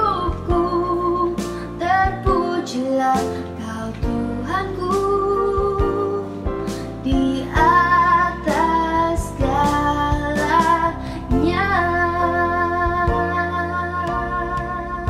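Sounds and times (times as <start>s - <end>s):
instrumental backing: 0.0s - 15.0s
woman singing worship song: 0.0s - 15.0s.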